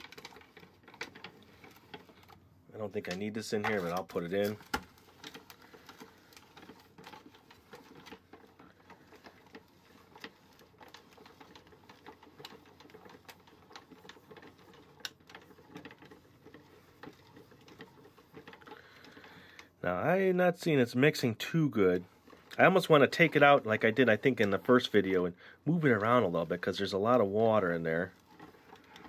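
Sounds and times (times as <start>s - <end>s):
plastic toy crank clicking: 3.6s - 19.7s.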